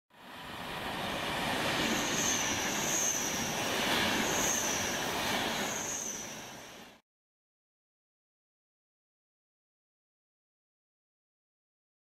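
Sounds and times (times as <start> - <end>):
train rushing noise: 0.1 - 7.0
train wheel squeal: 0.2 - 7.0.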